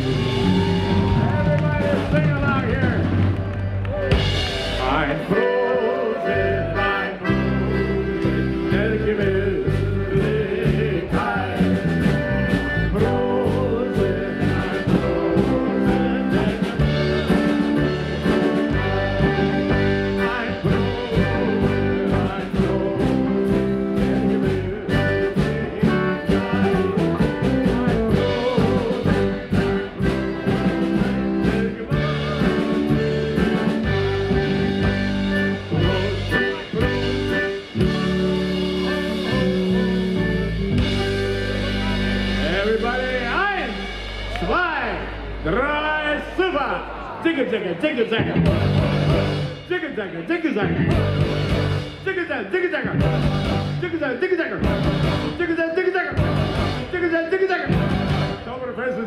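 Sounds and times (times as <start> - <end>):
polka band playing: 0.0 - 46.4, 48.0 - 59.0
man singing: 4.8 - 38.0, 38.9 - 43.7
piano accordion: 5.4 - 43.1.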